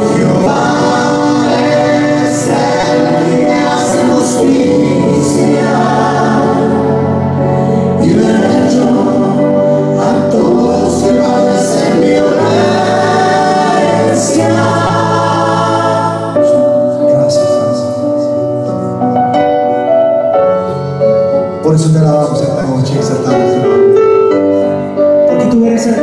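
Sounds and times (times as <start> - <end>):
choir singing a hymn: 0.0 - 18.1.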